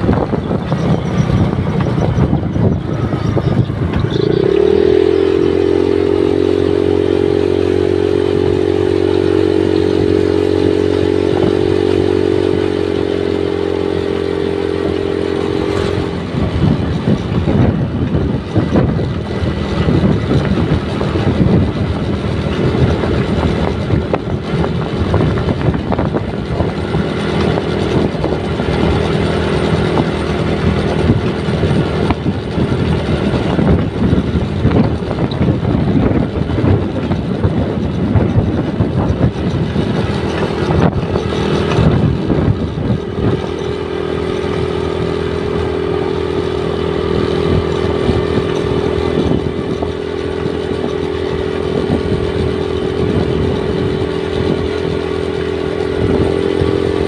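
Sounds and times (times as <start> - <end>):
motorcycle engine running: 0.0 - 57.0
wind rushing over microphone: 0.0 - 57.0.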